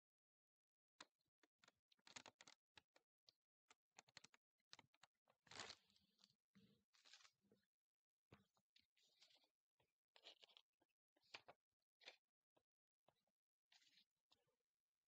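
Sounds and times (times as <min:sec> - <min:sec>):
piping bag crinkling and clicking: 0:01.0 - 0:05.8.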